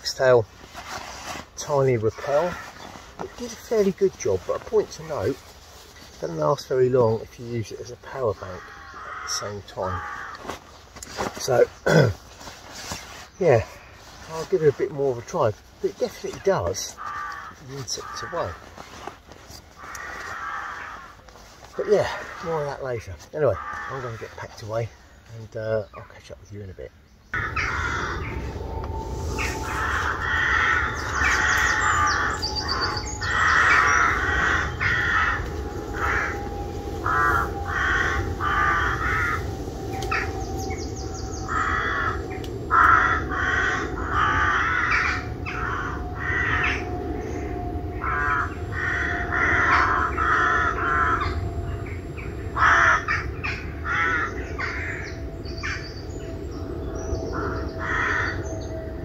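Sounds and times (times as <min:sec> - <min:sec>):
crows cawing: 0:02.1 - 0:03.9, 0:07.8 - 0:12.0, 0:16.5 - 0:19.1, 0:19.7 - 0:25.1, 0:27.4 - 0:59.0
faint steady hum: 0:27.2 - 0:59.0.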